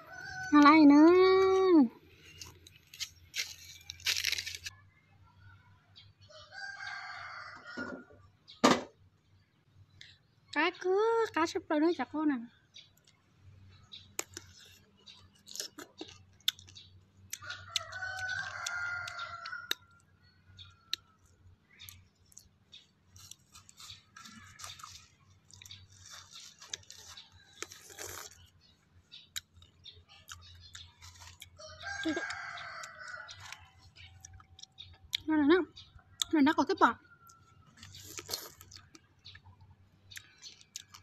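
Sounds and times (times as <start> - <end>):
crunching crisp fruit: 0.0 - 4.8, 12.8 - 36.4, 37.2 - 41.0
rooster crowing: 6.4 - 8.1, 31.6 - 33.6.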